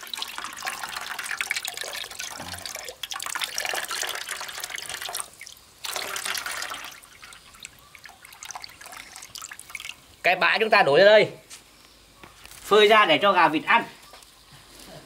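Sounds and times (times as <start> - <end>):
water trickling into metal basin: 0.0 - 10.3.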